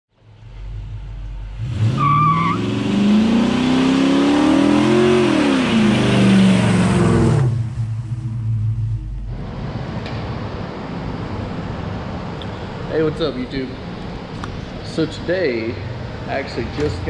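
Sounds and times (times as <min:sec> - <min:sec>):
car engine revving: 0:00.2 - 0:12.8.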